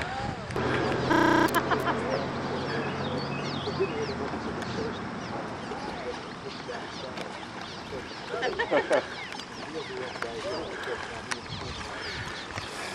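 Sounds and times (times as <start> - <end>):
low hum: 0.6 - 4.9
people's voices: 0.6 - 12.5.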